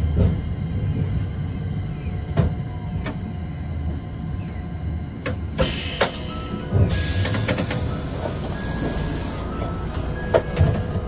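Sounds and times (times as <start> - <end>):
tram wheels rumbling: 0.0 - 11.0.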